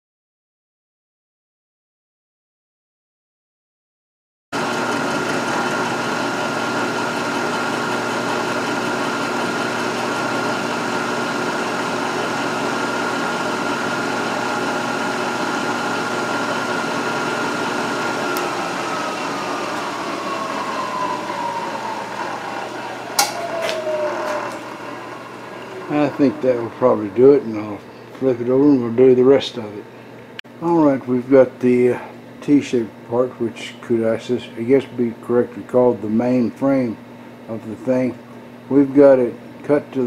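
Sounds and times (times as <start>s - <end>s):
milling machine whine: 4.6s - 29.6s.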